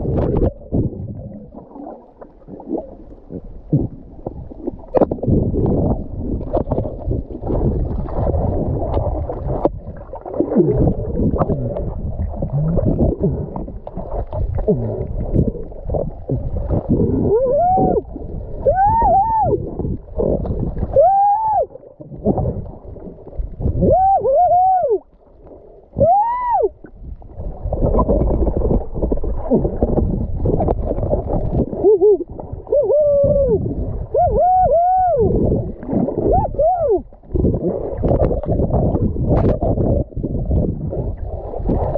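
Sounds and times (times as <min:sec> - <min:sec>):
underwater rumbling and sloshing: 0:00.0 - 0:41.9
person hooting underwater: 0:10.4 - 0:13.7, 0:14.5 - 0:22.6, 0:23.6 - 0:25.1, 0:25.9 - 0:26.9, 0:29.3 - 0:30.1, 0:31.6 - 0:37.7.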